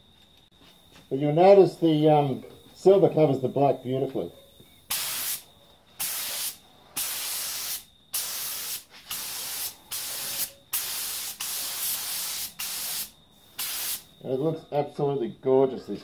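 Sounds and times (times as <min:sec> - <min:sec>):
paint spray gun hissing: 0:04.9 - 0:05.4, 0:06.0 - 0:14.0.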